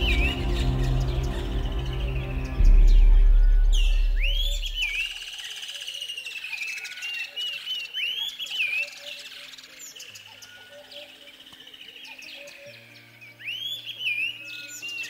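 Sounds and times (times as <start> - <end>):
deep boom: 0.0 - 5.2
ambient music low tones: 0.0 - 5.4
bird whistling and chirping: 0.0 - 15.0.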